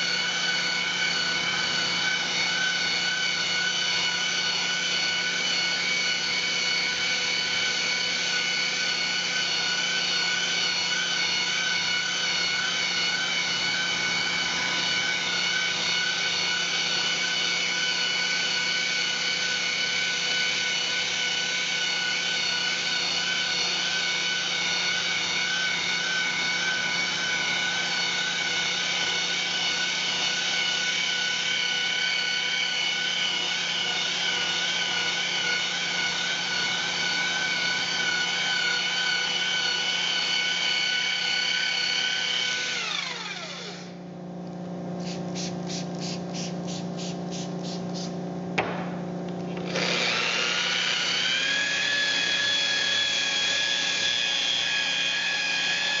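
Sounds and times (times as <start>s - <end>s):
electric polisher whining: 0.0s - 44.0s, 49.2s - 56.0s
short high hisses: 45.0s - 48.2s.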